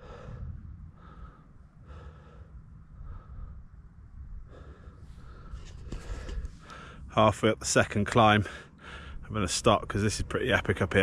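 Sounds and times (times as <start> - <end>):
cyclist breathing hard: 0.0 - 7.1, 8.4 - 9.3
low rumble: 0.0 - 7.3.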